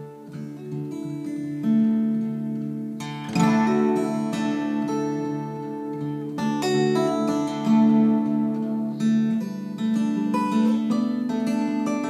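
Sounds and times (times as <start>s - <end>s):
fingerstyle acoustic guitar: 0.0s - 12.0s.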